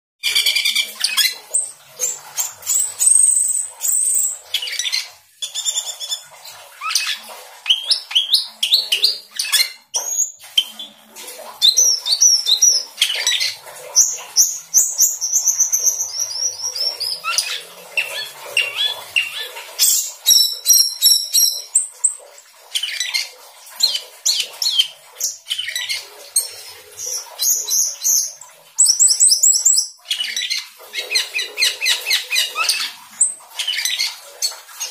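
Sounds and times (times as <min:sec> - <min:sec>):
starling singing: 0:11.6 - 0:21.9.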